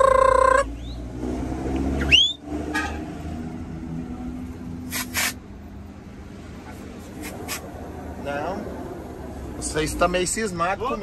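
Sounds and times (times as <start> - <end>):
loud truck horn blast: 2.6 - 3.2.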